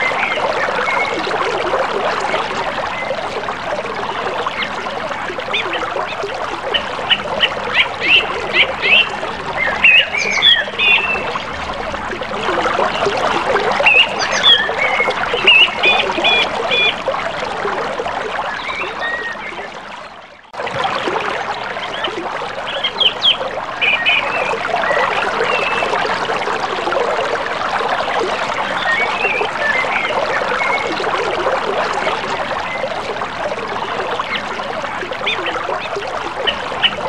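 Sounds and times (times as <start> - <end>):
birds calling: 4.1 - 11.7, 12.4 - 17.0, 18.4 - 19.7, 21.8 - 25.9, 35.2 - 37.0.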